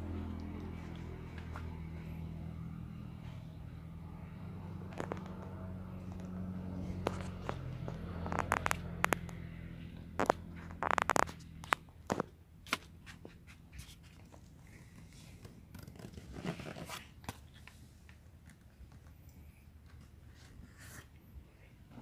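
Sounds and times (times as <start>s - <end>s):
low steady hum: 0.0s - 22.0s
scratchy rustling and clicks: 4.8s - 19.1s.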